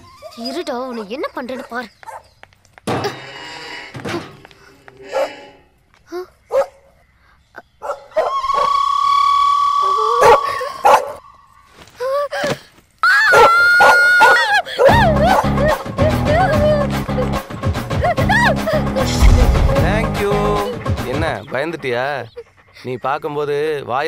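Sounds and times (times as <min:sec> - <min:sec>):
dog barking: 0:00.9 - 0:02.3, 0:05.1 - 0:05.4, 0:06.5 - 0:06.9, 0:07.8 - 0:08.3.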